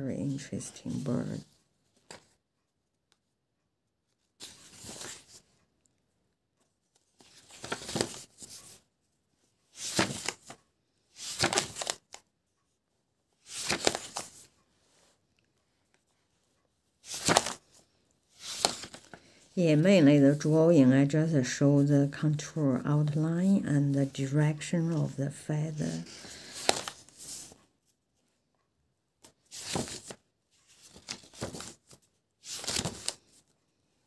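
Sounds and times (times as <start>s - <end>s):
sketchbook pages turning: 4.4s - 5.6s, 6.9s - 8.8s, 9.7s - 12.3s, 13.4s - 14.6s, 15.9s - 27.7s, 29.2s - 33.5s.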